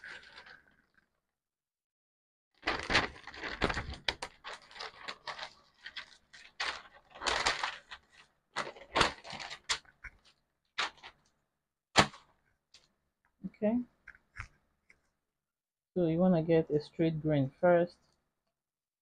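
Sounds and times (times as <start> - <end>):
paper rustling and crinkling: 0.0 - 0.8, 2.6 - 11.3.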